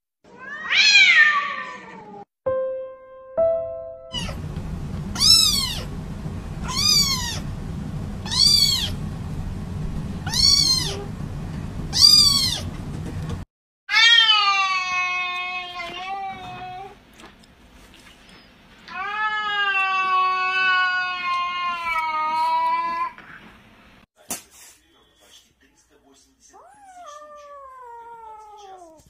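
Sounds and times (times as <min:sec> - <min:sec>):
cat long meow: 0:00.3 - 0:02.2, 0:06.6 - 0:07.4, 0:10.2 - 0:11.1, 0:13.9 - 0:16.9
low hum: 0:03.4 - 0:13.4
kitten meowing: 0:04.1 - 0:04.4, 0:05.1 - 0:05.9, 0:06.6 - 0:07.4, 0:08.2 - 0:09.0, 0:10.2 - 0:11.1, 0:11.9 - 0:12.7.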